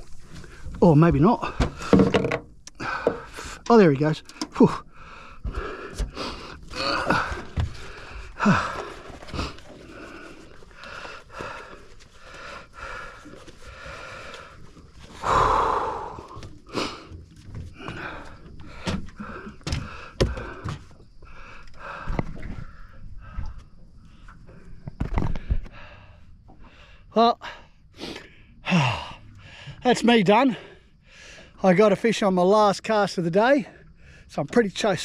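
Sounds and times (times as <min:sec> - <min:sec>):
man breathing hard: 0:02.7 - 0:03.7, 0:04.4 - 0:24.5, 0:25.2 - 0:29.8, 0:30.6 - 0:31.6.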